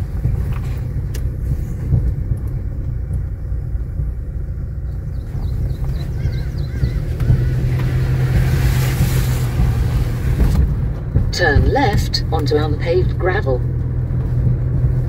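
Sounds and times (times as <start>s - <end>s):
car cabin rumble: 0.0s - 15.0s
knocks from bumpy road: 5.1s - 15.0s.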